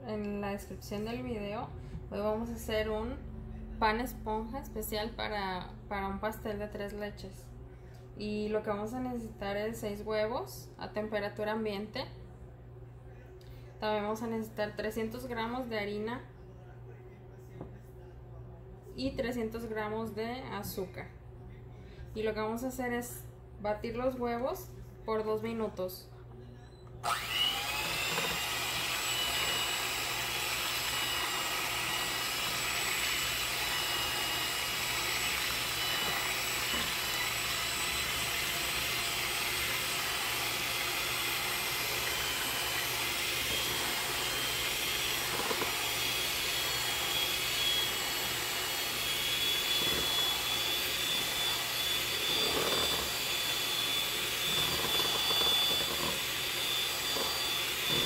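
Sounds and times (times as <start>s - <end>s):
electric hand mixer whining: 27.0s - 58.0s
beaters whipping eggs in bowl: 27.1s - 58.0s.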